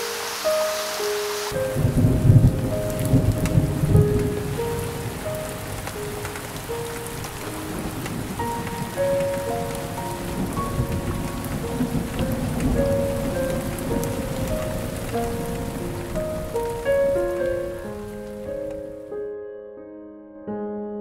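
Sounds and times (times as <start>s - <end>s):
steady rain falling: 0.0s - 19.0s
slow melody of held notes: 0.0s - 21.0s.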